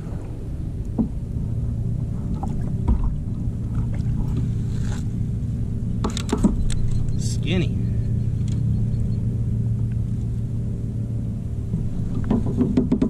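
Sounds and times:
motorboat engine droning: 0:00.0 - 0:13.0
light clicks: 0:08.4 - 0:08.7.

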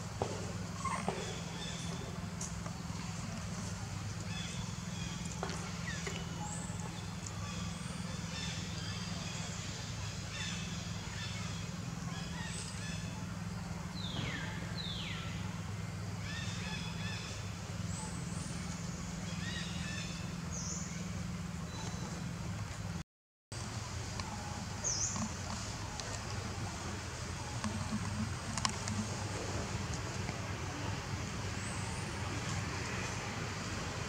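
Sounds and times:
steady low hum: 0:23.6 - 0:34.0.

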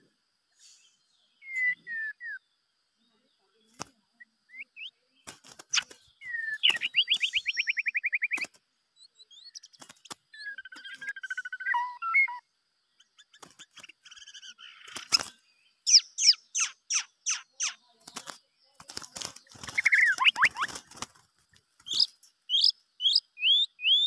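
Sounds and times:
bird singing whistled notes: 0:00.6 - 0:02.6, 0:04.1 - 0:17.9, 0:19.5 - 0:20.9, 0:21.8 - 0:24.0
sharp bird clicks: 0:05.2 - 0:08.6, 0:09.3 - 0:11.9, 0:13.0 - 0:24.0.

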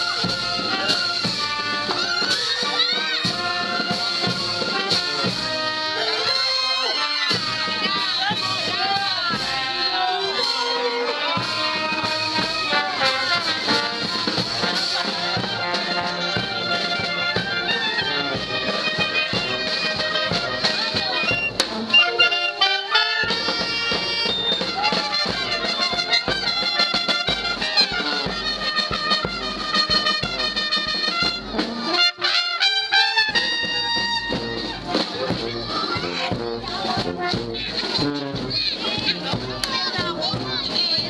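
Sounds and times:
brass band playing: 0:00.0 - 0:41.0.

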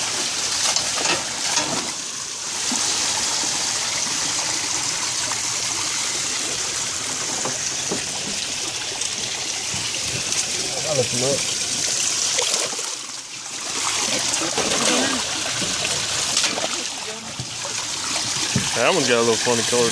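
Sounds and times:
running water rushing: 0:00.0 - 0:19.9
fish splashing in water: 0:11.4 - 0:19.2.

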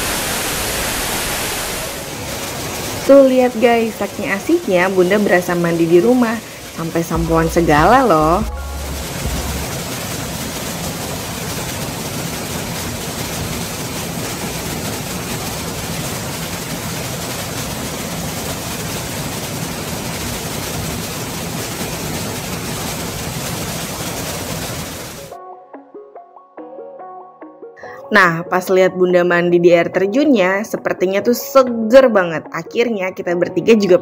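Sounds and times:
waterfall rushing: 0:00.0 - 0:25.3.

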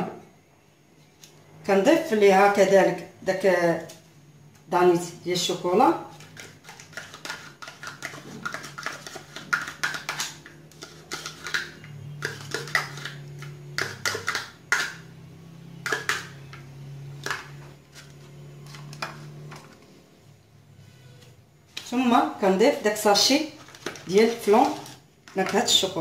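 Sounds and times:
metal spoon scraping bowl: 0:05.4 - 0:19.9, 0:23.2 - 0:26.0.

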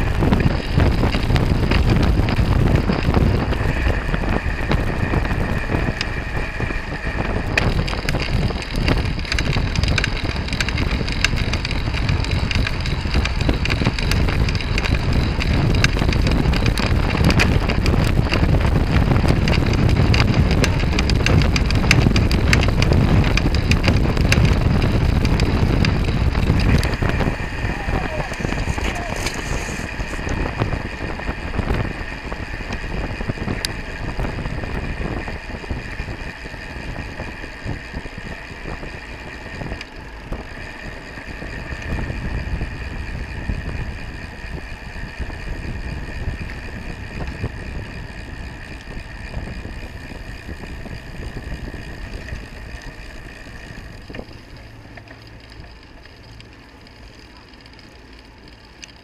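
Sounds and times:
wind on microphone: 0:00.0 - 0:54.6
bike tyre and road noise: 0:00.0 - 0:59.0.

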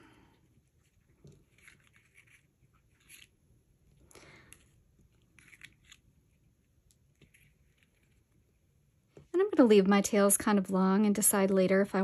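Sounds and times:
faint rustles and scratches: 0:00.4 - 0:03.4, 0:04.5 - 0:09.3.

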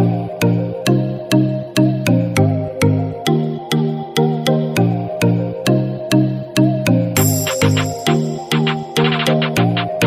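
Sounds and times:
electronic music with steady beat: 0:07.2 - 0:10.0.

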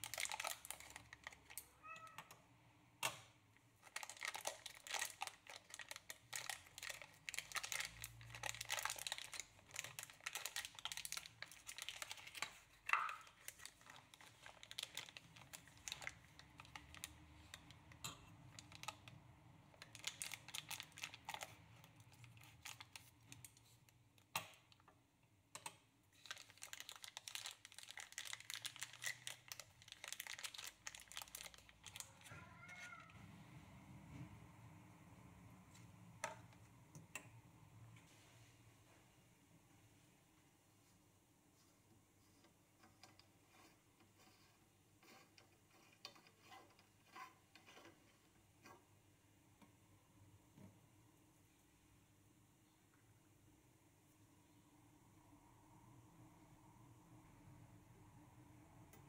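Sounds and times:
plastic wrapping crinkling: 0:00.0 - 0:01.9, 0:03.8 - 0:19.1, 0:19.7 - 0:23.8, 0:26.1 - 0:32.7.

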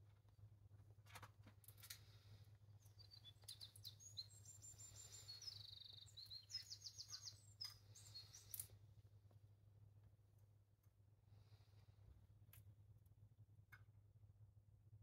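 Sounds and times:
bird chirping: 0:02.8 - 0:08.7
bird trill: 0:02.9 - 0:08.7.

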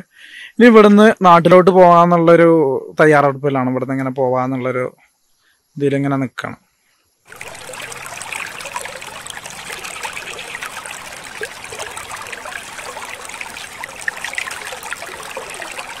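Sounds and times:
river rushing over stones: 0:07.3 - 0:16.0.

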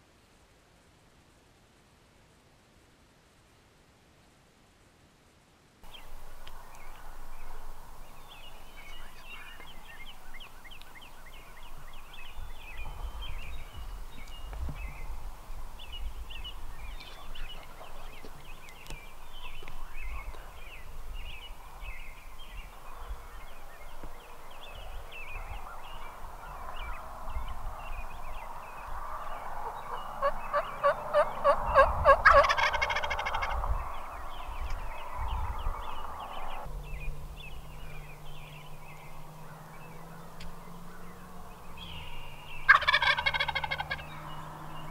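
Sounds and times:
songbirds chirping and trilling: 0:05.8 - 0:44.9
low rumble: 0:33.3 - 0:42.6.

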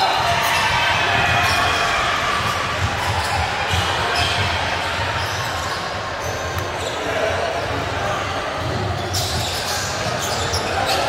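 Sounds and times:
hubbub of sports hall: 0:00.0 - 0:11.0
basketballs bouncing on hardwood: 0:01.2 - 0:05.3.

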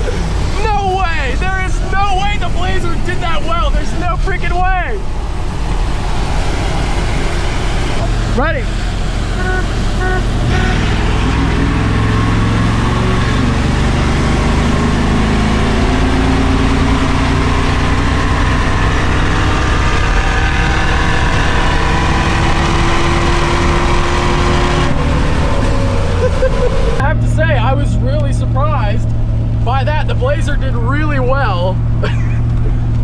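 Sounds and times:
engine accelerating at full throttle: 0:00.0 - 0:33.0
short beeps: 0:09.4 - 0:10.9.

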